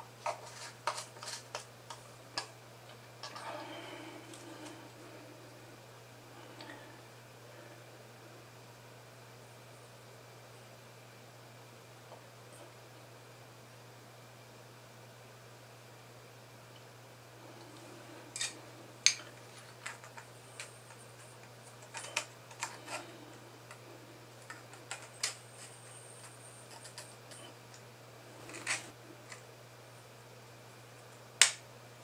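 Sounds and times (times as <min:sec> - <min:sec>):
plastic parts clicking: 0:21.4 - 0:23.0.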